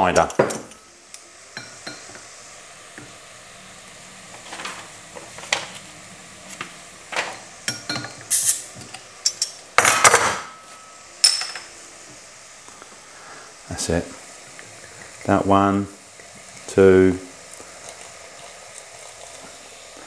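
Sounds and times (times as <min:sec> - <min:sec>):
faint food sizzling: 0:00.0 - 0:20.0
kitchen utensils clinking: 0:07.1 - 0:11.7.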